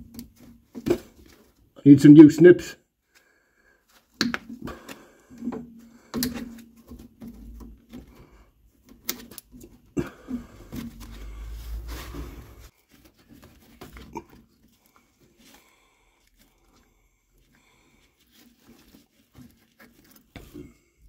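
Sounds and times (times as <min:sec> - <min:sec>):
rubber boot rubbing: 0:10.2 - 0:15.6.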